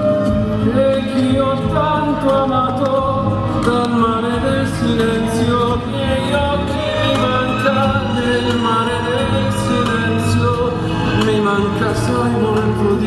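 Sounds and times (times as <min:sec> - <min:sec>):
music with singing: 0:00.0 - 0:13.0.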